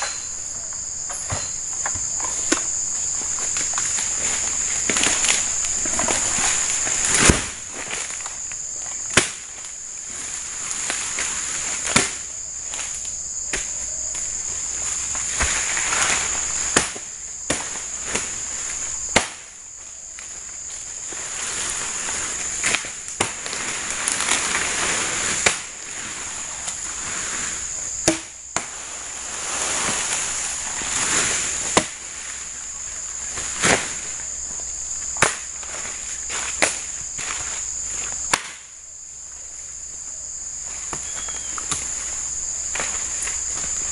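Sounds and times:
dry palm fronds rustling: 0.0s - 43.9s
insects droning: 0.0s - 43.9s
sharp chopping knocks: 28.0s - 28.7s.

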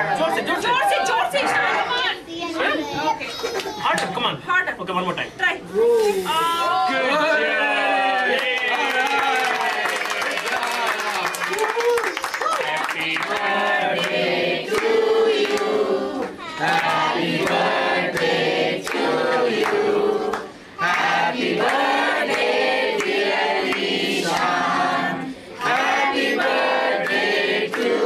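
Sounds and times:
adults and children singing: 12.6s - 28.0s.

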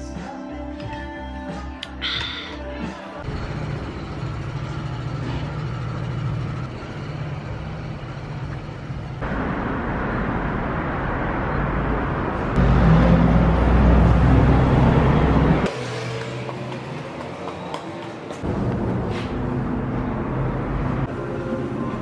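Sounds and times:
vehicle engine rumble passing close: 3.3s - 22.0s
passing cars: 6.6s - 22.0s.

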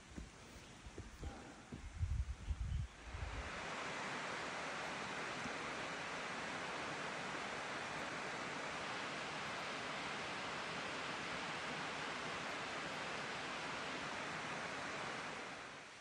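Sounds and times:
stream water rushing over rocks: 3.2s - 16.0s.

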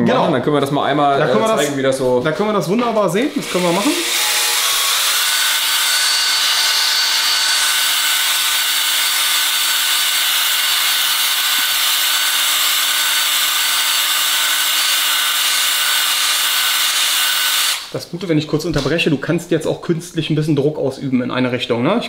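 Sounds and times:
drill motor whine: 3.3s - 17.9s.

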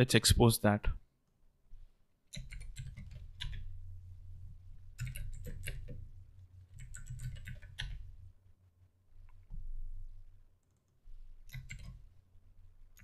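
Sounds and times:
low steady hum: 0.9s - 13.0s
keyboard typing clicks: 2.3s - 3.6s, 5.0s - 6.0s, 6.7s - 8.0s, 10.6s - 12.0s.

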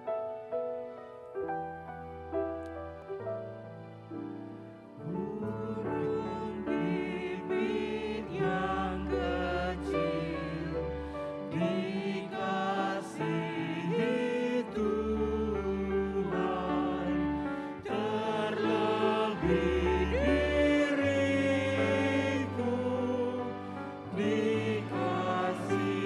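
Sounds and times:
piano accompaniment: 0.0s - 26.0s
people singing a hymn: 5.0s - 26.0s.

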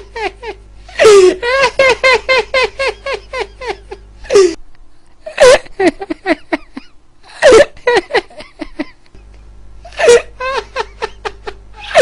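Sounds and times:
person laughing hard: 0.0s - 4.6s, 5.2s - 9.1s, 9.9s - 12.0s.

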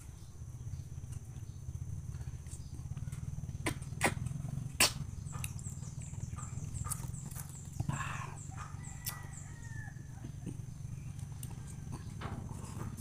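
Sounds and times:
mouth sucking and chewing: 3.6s - 5.6s.

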